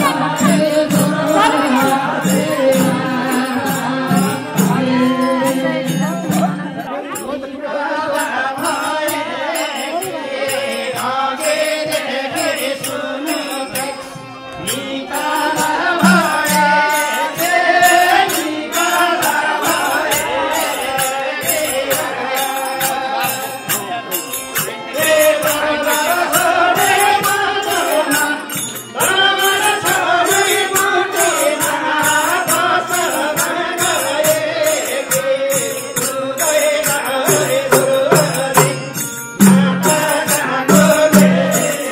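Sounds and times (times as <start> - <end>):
devotional singing: 0.0 - 41.9
jingling percussion beat: 0.0 - 41.9.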